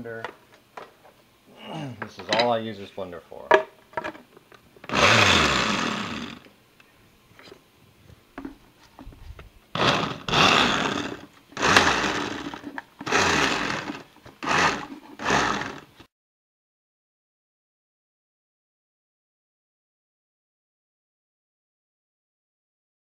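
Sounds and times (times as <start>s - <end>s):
blender pulsing: 4.8s - 6.4s, 9.7s - 16.0s.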